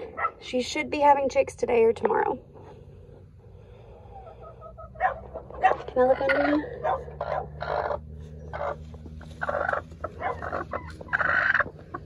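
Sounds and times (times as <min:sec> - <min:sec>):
hen calling harshly: 0:04.2 - 0:12.0.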